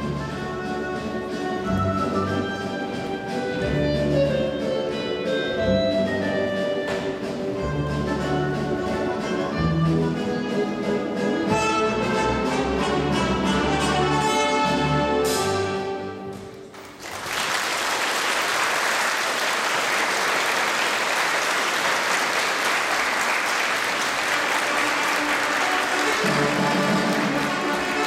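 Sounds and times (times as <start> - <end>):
orchestral polonaise music: 0.0 - 17.0, 19.9 - 28.0
audience applause: 16.7 - 28.0.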